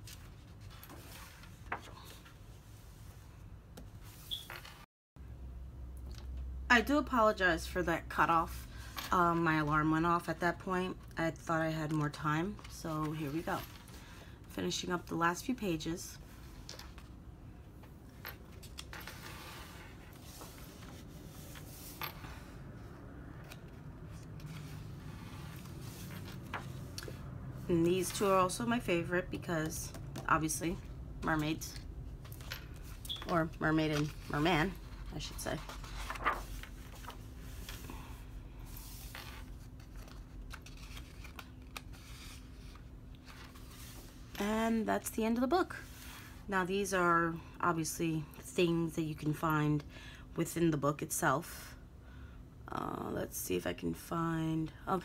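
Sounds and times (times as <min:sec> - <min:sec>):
paper pages rustling: 0:32.3 - 0:38.0, 0:38.7 - 0:44.2.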